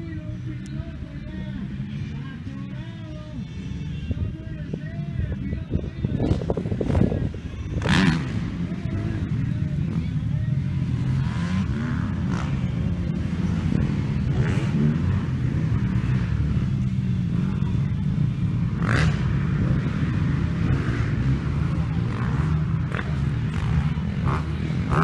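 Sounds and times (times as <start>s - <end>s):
motocross bikes revving: 6.2s - 25.0s.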